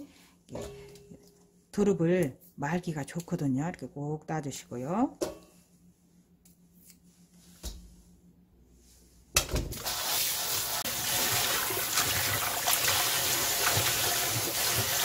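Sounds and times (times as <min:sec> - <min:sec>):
tap water splashing in sink: 0:10.8 - 0:15.0.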